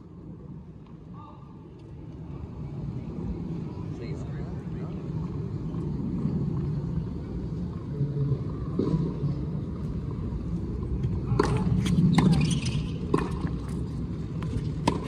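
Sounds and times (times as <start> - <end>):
tennis ball bouncing on court: 11.2 - 13.8, 14.4 - 15.0
tennis ball hit by racket: 11.3 - 12.4, 14.4 - 15.0.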